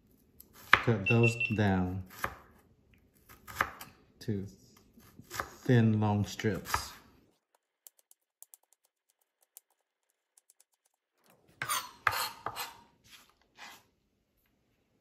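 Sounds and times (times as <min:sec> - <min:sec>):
knife scraping across board: 0:11.6 - 0:13.9.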